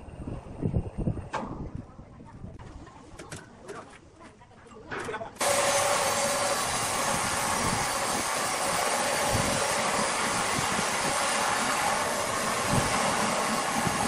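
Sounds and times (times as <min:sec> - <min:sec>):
band saw cutting log: 0:05.4 - 0:14.0.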